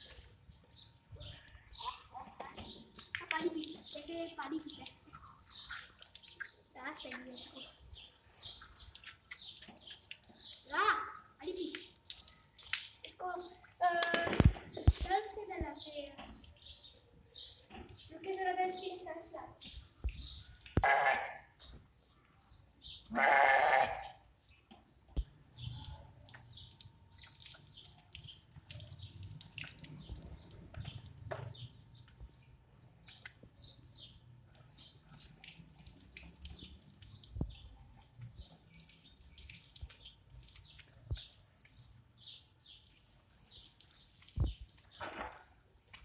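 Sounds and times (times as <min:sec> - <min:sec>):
hose water splashing: 0:00.0 - 0:21.1, 0:25.2 - 0:46.0
sheep bleating: 0:20.8 - 0:21.4, 0:23.1 - 0:24.1.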